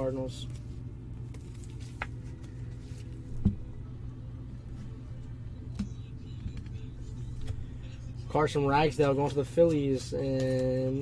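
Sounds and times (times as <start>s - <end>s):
steady low hum: 0.0s - 11.0s
card and plastic sleeve handling: 0.4s - 3.5s, 8.9s - 11.0s.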